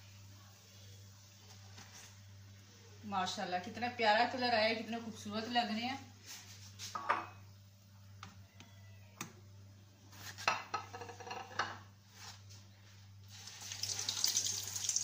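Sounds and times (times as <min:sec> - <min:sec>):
loud sizzle of frying oil: 0:13.2 - 0:15.0.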